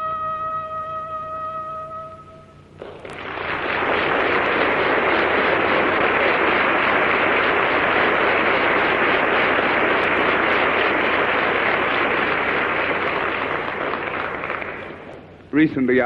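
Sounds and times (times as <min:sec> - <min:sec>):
audience applauding: 0:02.8 - 0:15.4.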